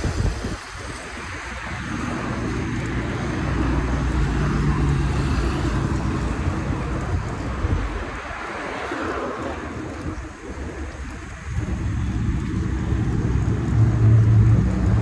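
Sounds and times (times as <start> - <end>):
low traffic rumble: 0.0 - 15.0
vehicle engine passing: 11.6 - 15.0.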